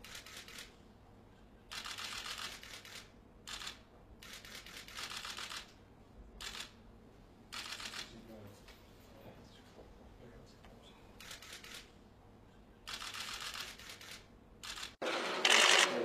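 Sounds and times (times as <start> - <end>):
camera shutters firing in bursts: 0.0 - 0.8, 1.7 - 5.8, 6.4 - 6.8, 7.5 - 8.1, 11.2 - 11.9, 12.9 - 16.0.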